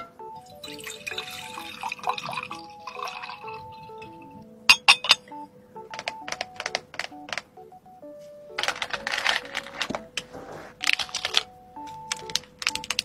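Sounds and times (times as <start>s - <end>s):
tinkling background tune: 0.0s - 10.2s
milky drink pouring into glass: 0.5s - 4.2s
lid clinking on glass: 4.7s - 5.3s.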